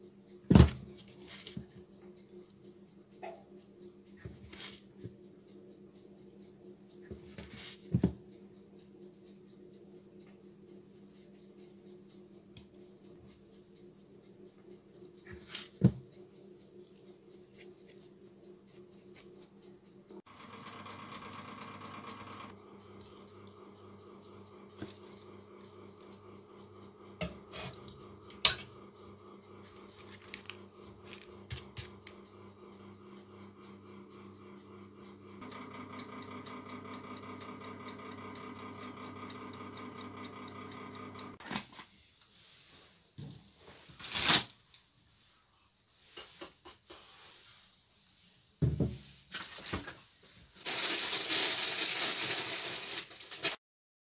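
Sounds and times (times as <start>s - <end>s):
oven whirring: 0.0s - 41.4s.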